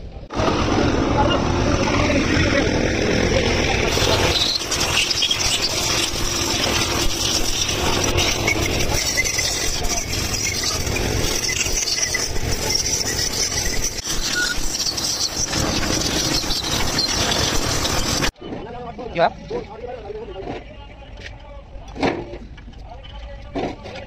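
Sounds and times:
compressed air hissing from blow gun: 0:03.9 - 0:18.3.

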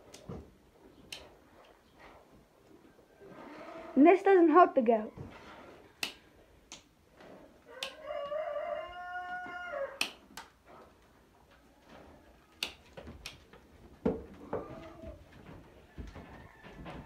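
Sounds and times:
sharp clicks: 0:01.0 - 0:01.3
rooster crowing: 0:07.7 - 0:10.2, 0:16.0 - 0:17.0.

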